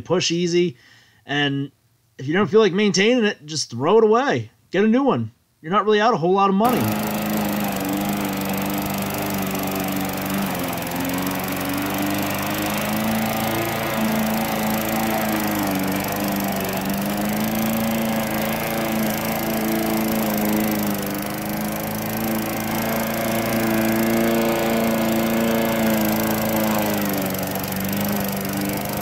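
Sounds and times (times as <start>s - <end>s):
lawn mower engine cutting grass: 6.6s - 29.0s.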